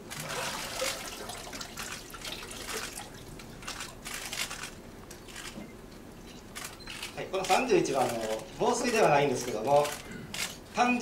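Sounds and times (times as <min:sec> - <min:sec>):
water dripping and splashing: 0:00.2 - 0:04.1.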